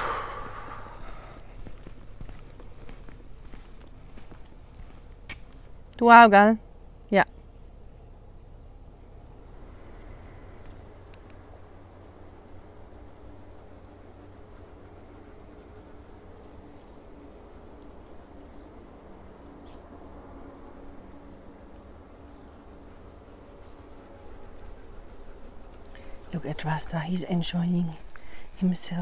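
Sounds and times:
meadow insects chirring: 0.0s - 1.6s, 9.1s - 29.0s.

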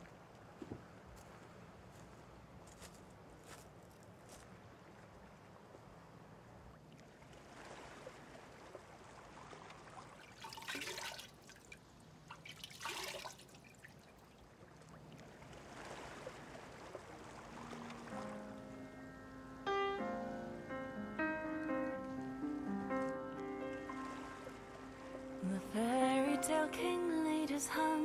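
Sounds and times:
water trickling and dripping: 8.6s - 15.6s
water splashing on a face: 10.2s - 14.1s.

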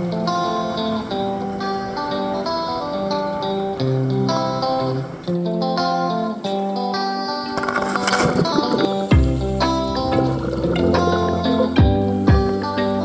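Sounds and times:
plucked guitar tune: 0.0s - 13.0s.

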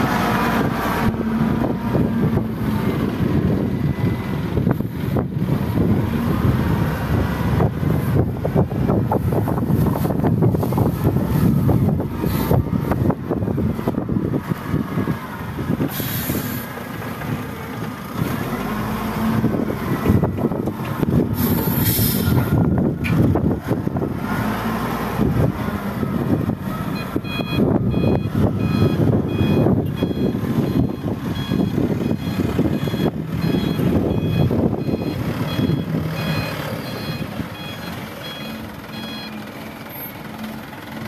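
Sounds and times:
diesel engine running under load: 0.0s - 41.0s
short hisses: 21.4s - 22.4s
reversing alarm beeping: 26.8s - 40.2s.

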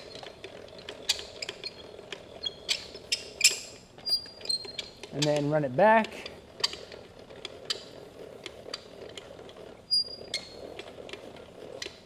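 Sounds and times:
handle squeak: 0.0s - 8.0s, 8.7s - 11.2s
handwheel mechanism clicking: 0.0s - 12.0s.

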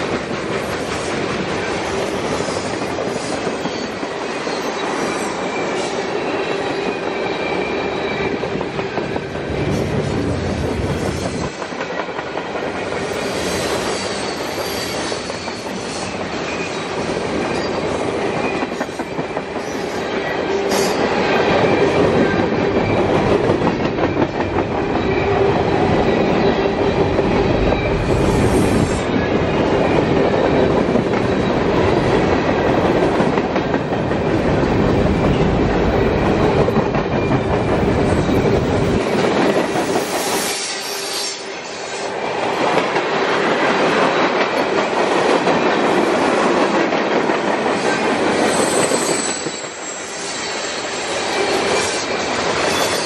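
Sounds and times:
freight train wheels clattering: 0.0s - 40.6s.

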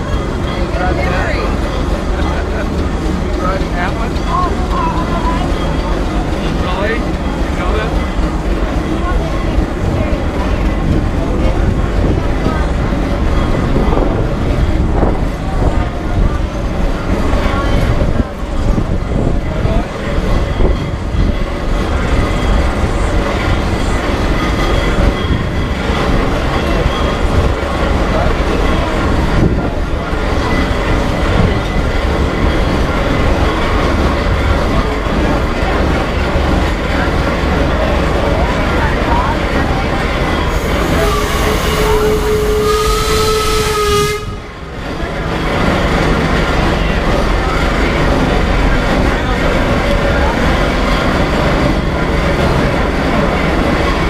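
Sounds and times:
steam engine whistle: 40.5s - 44.6s.

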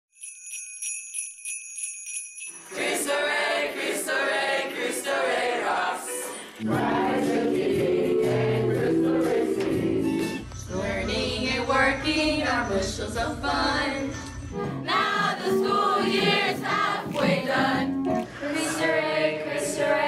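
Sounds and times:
jingle bells shaken: 0.1s - 3.6s
voices singing: 2.7s - 20.0s.

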